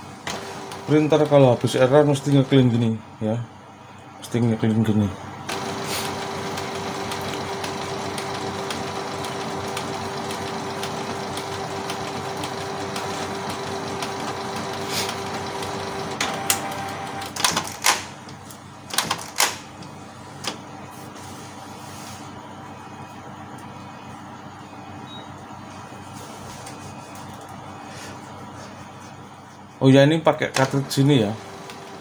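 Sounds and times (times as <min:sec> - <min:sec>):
printer motor whirring: 0:00.0 - 0:03.2, 0:04.8 - 0:32.0
printer mechanism clicking: 0:05.5 - 0:20.6, 0:30.5 - 0:30.9.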